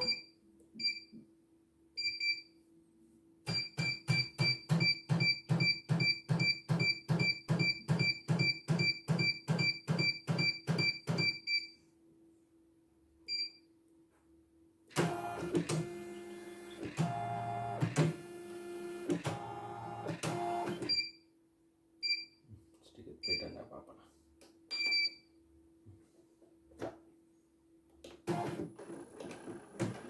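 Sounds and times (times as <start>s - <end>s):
short beep: 0.0s - 1.1s
machine beeps with low knocks: 0.0s - 1.2s, 2.0s - 2.5s, 3.5s - 11.8s, 13.3s - 13.6s, 20.4s - 21.2s, 22.0s - 22.4s, 24.7s - 25.3s.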